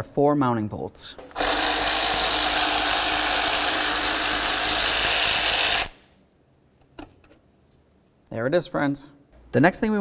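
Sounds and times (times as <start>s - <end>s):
power ratchet running: 1.2s - 6.0s.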